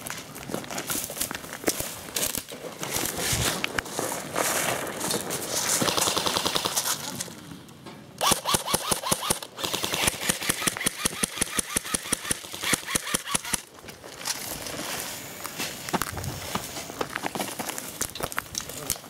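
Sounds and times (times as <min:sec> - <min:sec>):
airsoft rifle firing bursts: 0:05.8 - 0:06.9, 0:08.2 - 0:13.7.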